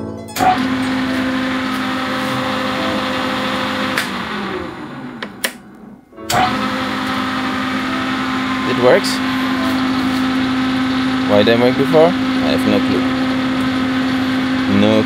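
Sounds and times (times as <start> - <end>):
lathe motor humming: 0.4 - 15.0
clicks: 3.9 - 4.4, 5.1 - 7.2.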